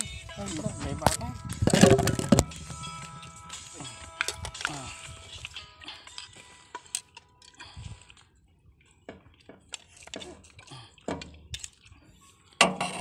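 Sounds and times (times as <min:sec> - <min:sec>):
chewing: 0:03.6 - 0:12.6.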